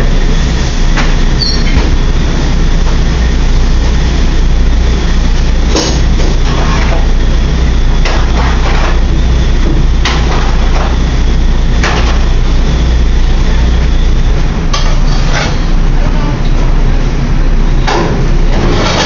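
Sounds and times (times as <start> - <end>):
kitchen ventilation hum: 0.0 - 19.0
metal pans clanking and scraping: 18.6 - 19.0.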